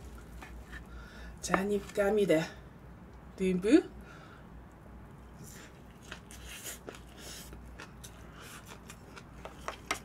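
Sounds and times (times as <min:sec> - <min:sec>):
soft chewing: 0:04.7 - 0:10.0.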